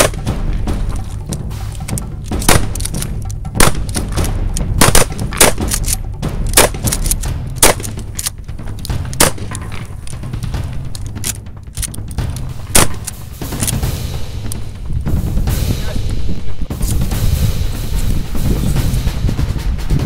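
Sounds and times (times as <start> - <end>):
shotgun blasts with echo: 0.0 - 0.7, 2.2 - 8.3, 9.0 - 10.0, 12.7 - 13.9.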